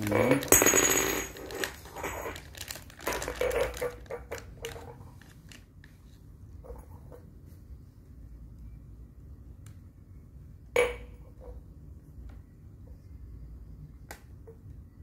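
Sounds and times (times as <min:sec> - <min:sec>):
plastic bag crinkling: 0:01.2 - 0:06.0.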